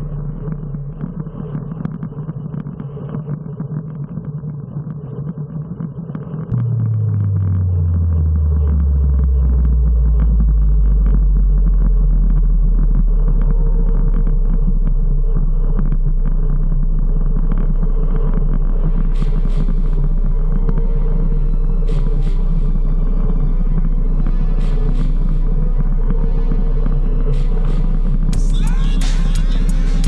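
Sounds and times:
loud low hum: 0.0 - 5.5, 6.5 - 30.0
wind rumble: 6.4 - 28.4.

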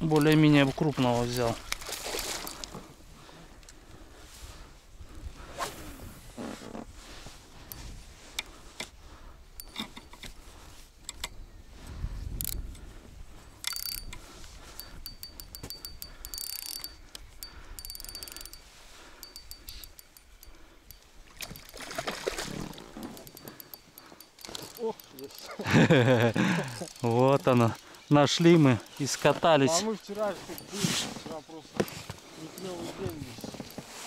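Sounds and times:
fishing reel ticking and whining: 9.6 - 10.1, 12.4 - 12.6, 13.6 - 22.0, 22.6 - 29.3, 31.8 - 33.9.

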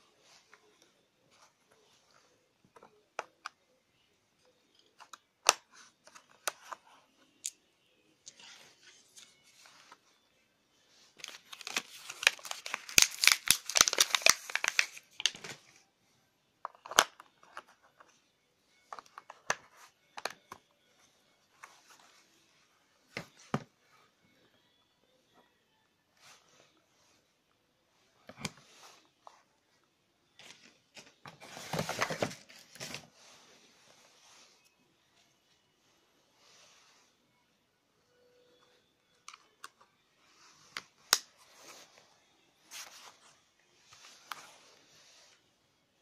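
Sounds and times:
packaging crinkling and tearing: 11.2 - 15.5.

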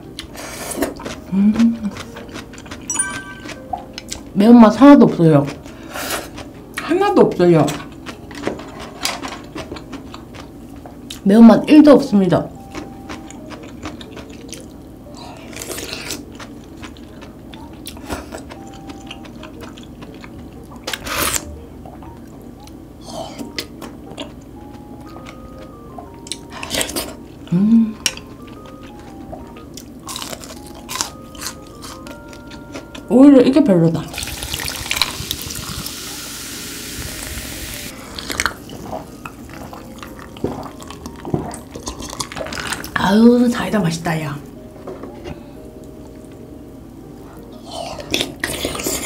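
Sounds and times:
chewing with mouth sounds: 0.1 - 4.3, 4.9 - 6.8, 7.7 - 11.2, 12.6 - 33.1, 37.9 - 43.0, 47.2 - 49.0
glass clinks: 2.9 - 3.6
soda fizzing into a glass: 34.2 - 37.6.

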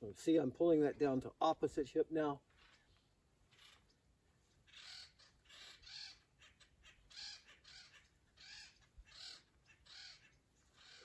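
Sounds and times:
crow cawing: 4.7 - 11.0.

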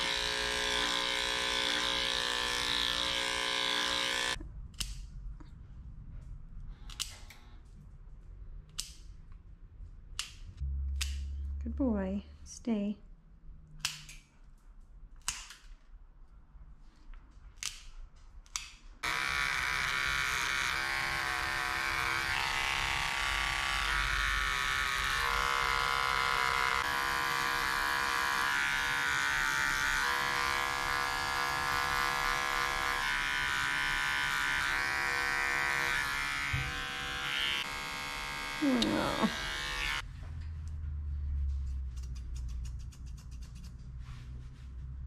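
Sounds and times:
electric clippers buzzing: 0.0 - 4.4, 19.0 - 40.0.

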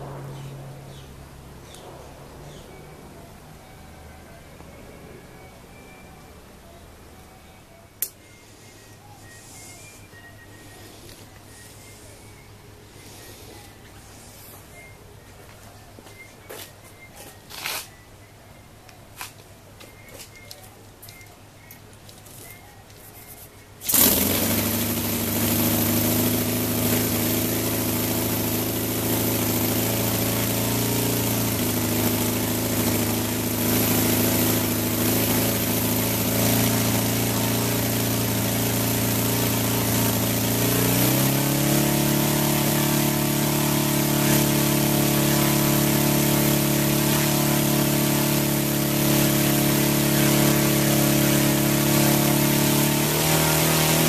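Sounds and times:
model radial engine running: 23.8 - 54.0.

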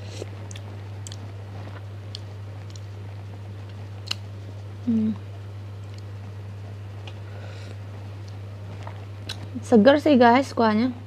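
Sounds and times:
low electrical hum: 0.0 - 11.0
person humming: 4.8 - 5.3.

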